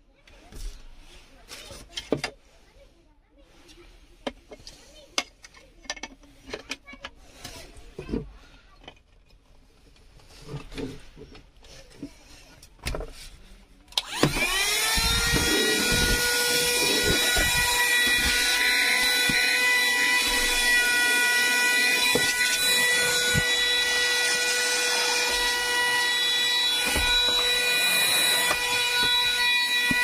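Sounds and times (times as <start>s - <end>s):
handheld vacuum motor whine: 13.9s - 30.0s.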